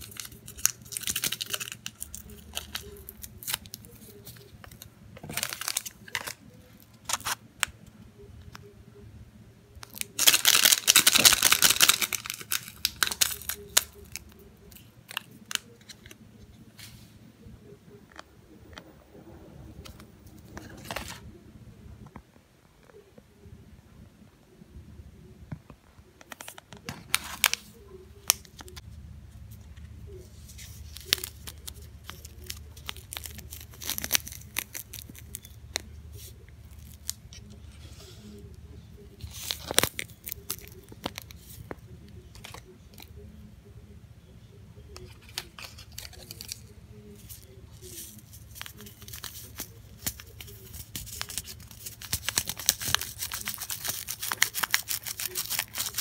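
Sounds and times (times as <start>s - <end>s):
paper packets tearing and crinkling: 0.0s - 7.4s, 9.8s - 16.2s, 26.3s - 28.8s, 30.4s - 37.2s, 39.2s - 43.1s, 45.0s - 56.0s
steady low hum: 0.0s - 56.0s.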